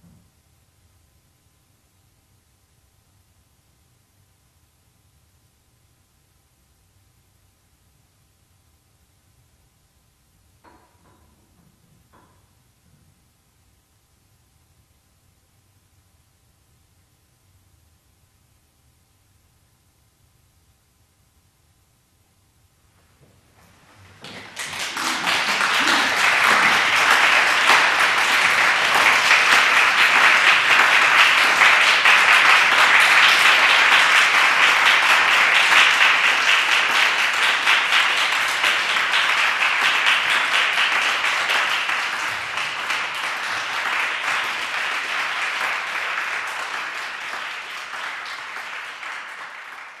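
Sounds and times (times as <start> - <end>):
audience applauding: 23.9 - 50.0.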